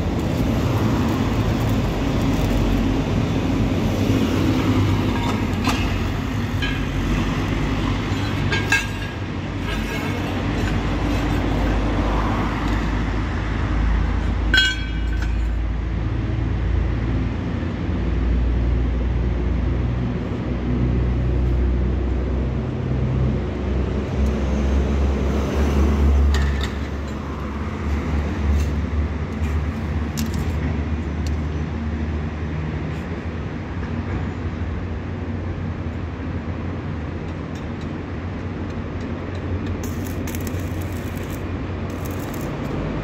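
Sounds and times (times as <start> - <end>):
road traffic rumble: 0.0 - 43.0
steel pieces clinking: 39.8 - 42.7.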